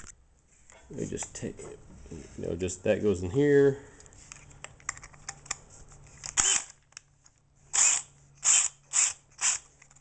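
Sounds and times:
power drill bursts: 6.4 - 6.7, 7.8 - 9.6.

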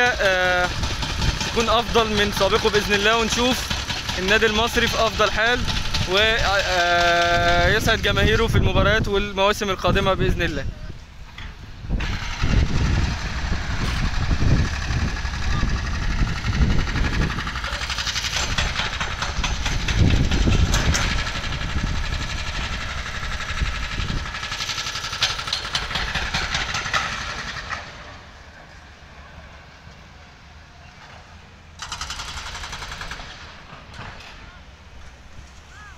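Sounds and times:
excavator engine running: 0.0 - 35.7
wind buffeting microphone: 0.4 - 24.6.

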